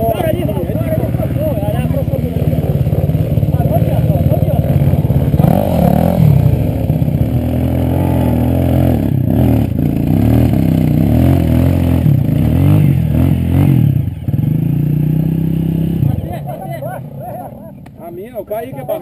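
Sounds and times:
motorcycle engine revving: 0.0 - 19.0.

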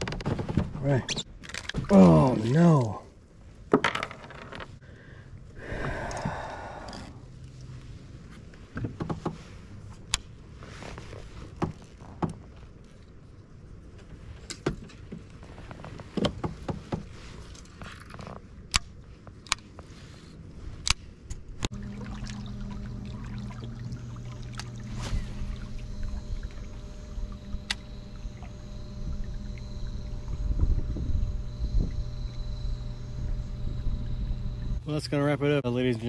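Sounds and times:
water: 0.0 - 4.1, 4.7 - 36.0
low hum of kayak under way: 0.0 - 36.0
clicks and knocks of fishing gear: 1.4 - 1.9.

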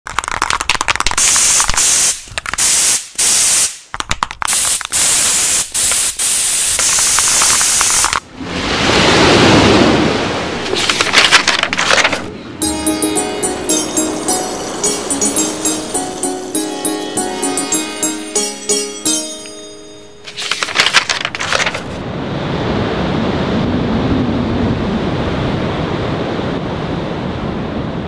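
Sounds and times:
spray can rattling: 0.1 - 2.9, 3.6 - 8.2, 10.6 - 12.3
spray can hissing: 1.2 - 3.8, 4.5 - 8.1.

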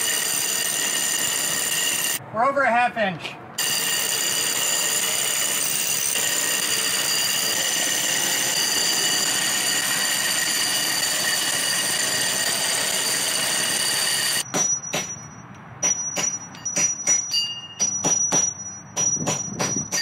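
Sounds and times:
high ringing tones: 0.0 - 2.2, 3.6 - 20.0
rotary hammer grinding through brick: 0.0 - 2.2, 3.6 - 15.2.

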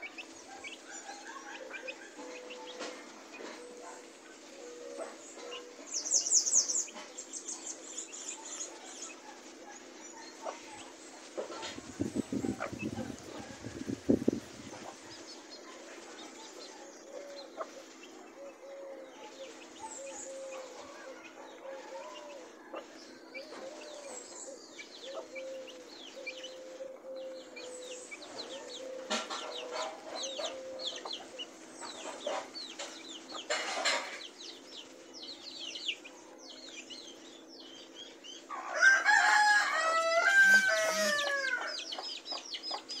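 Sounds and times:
chicks peeping: 0.0 - 43.0
rooster crowing: 38.5 - 42.0.

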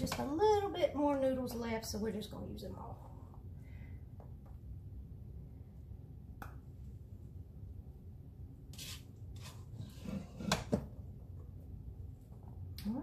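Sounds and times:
spaghetti server scraping pot: 8.7 - 10.8.

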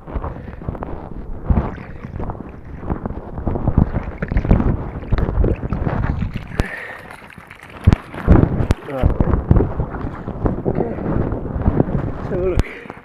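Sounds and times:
water sloshing and splashing: 0.4 - 10.5.

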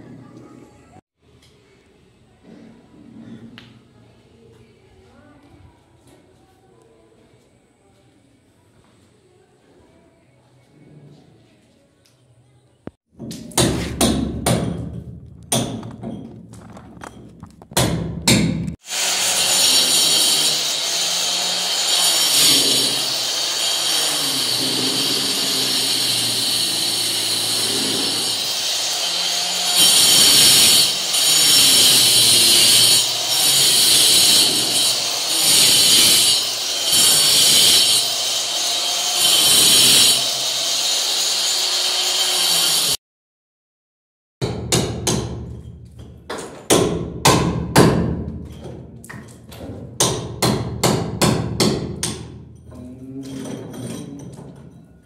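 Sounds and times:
hammer striking chisel: 13.2 - 16.2, 17.7 - 18.8, 44.4 - 48.2, 50.0 - 52.4
angle grinder cutting concrete: 18.8 - 43.0.

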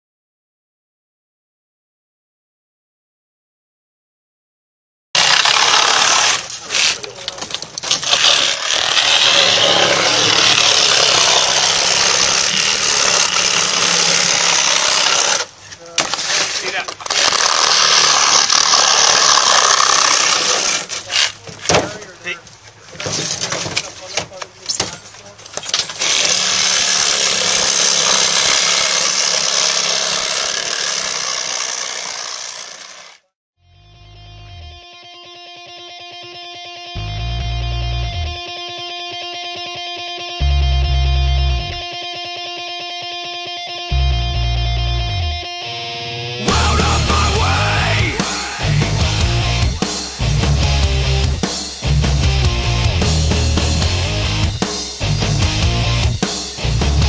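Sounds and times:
reciprocating saw cutting glass: 5.2 - 7.2, 7.8 - 21.4, 25.7 - 33.3.

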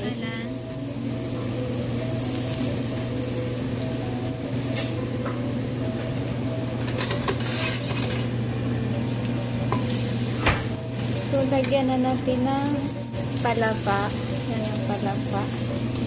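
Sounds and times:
garlic sizzling in oil: 0.0 - 5.2, 6.8 - 16.0
wooden spatula scraping pot: 7.1 - 8.1.

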